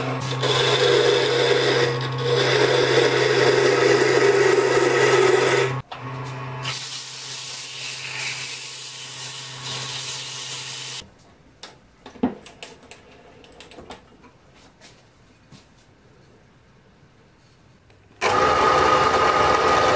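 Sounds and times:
wood lathe motor hum: 0:00.0 - 0:06.3, 0:18.2 - 0:19.9.

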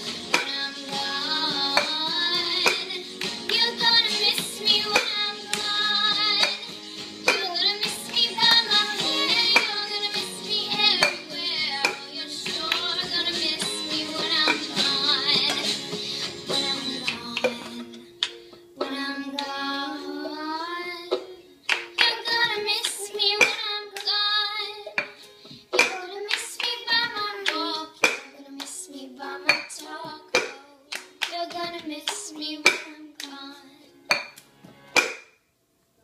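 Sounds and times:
song with singing voice: 0:00.0 - 0:34.9
sharp irregular taps: 0:01.5 - 0:15.8.

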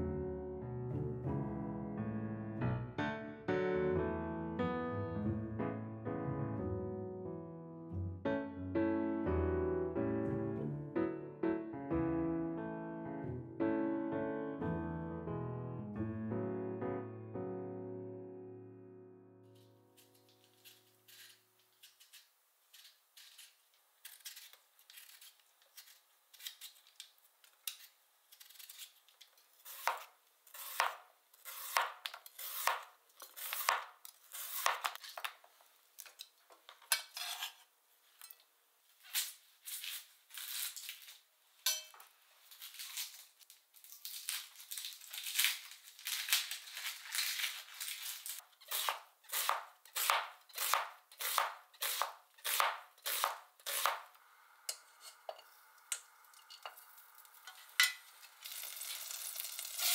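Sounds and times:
peeler scraping potato skin: 0:19.9 - 0:35.4, 0:36.9 - 0:38.4, 0:39.0 - 0:41.2, 0:42.5 - 0:54.1, 0:57.2 - 0:59.9
knife slicing on cutting board: 0:29.7 - 0:35.2, 0:48.6 - 0:54.0.

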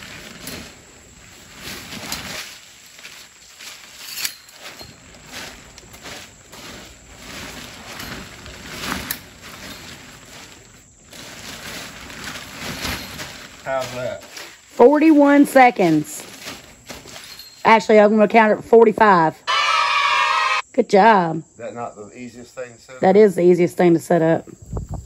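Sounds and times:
tent fabric rustling: 0:00.0 - 0:17.8
tent pole frame rattling: 0:00.0 - 0:18.5.

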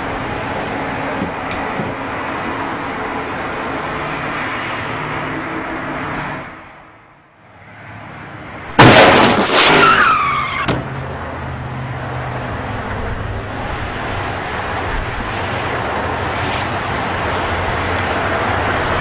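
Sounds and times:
road traffic noise: 0:00.0 - 0:19.0
car tyres screeching: 0:08.8 - 0:11.1.

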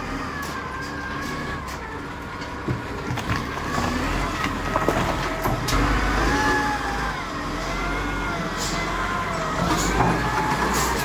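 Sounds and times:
wheel loader diesel engine working: 0:00.0 - 0:11.0
stones knocking and clattering: 0:02.6 - 0:05.3.

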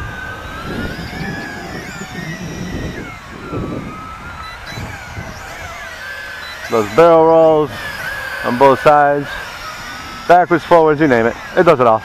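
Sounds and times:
wind rumble on microphone: 0:00.0 - 0:06.0
drone propellers whining: 0:00.0 - 0:12.0.

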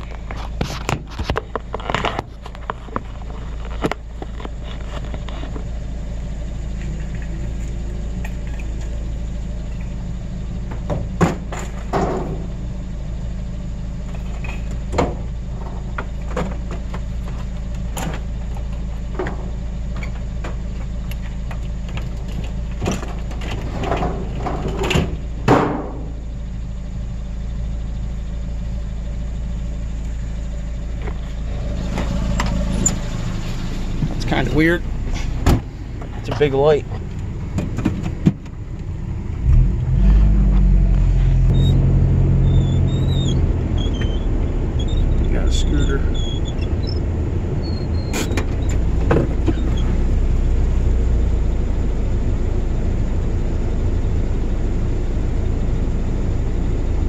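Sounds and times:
vehicle engine idling: 0:00.0 - 0:57.0
scrap metal knocks and clanks: 0:22.3 - 0:26.1.

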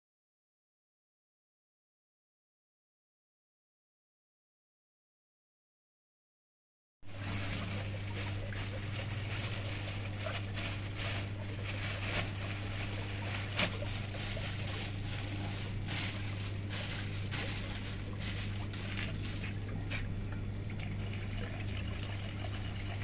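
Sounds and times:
low electric hum: 0:07.0 - 0:23.0
plastic bag rustling: 0:07.1 - 0:20.1
constant hiss: 0:07.1 - 0:22.2.

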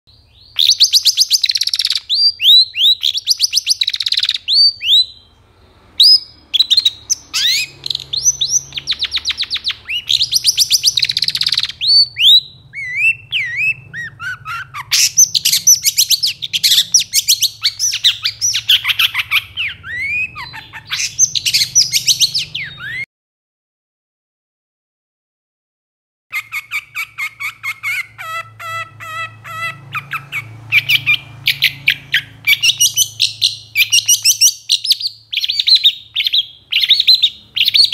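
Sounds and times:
shrike singing: 0:00.3 - 0:23.0.

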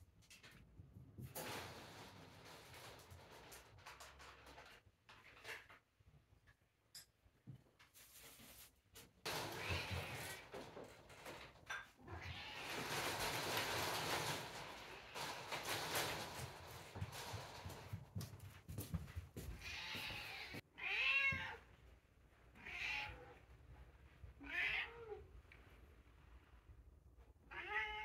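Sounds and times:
rustling: 0:07.8 - 0:20.6
cat meowing: 0:19.6 - 0:21.6, 0:22.6 - 0:23.4, 0:27.5 - 0:28.0.

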